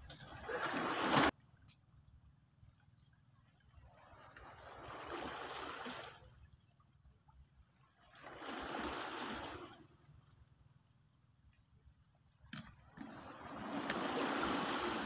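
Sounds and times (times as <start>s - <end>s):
low steady rumble: 1.3s - 5.1s, 9.6s - 13.9s
waves washing against rocks: 13.0s - 15.0s.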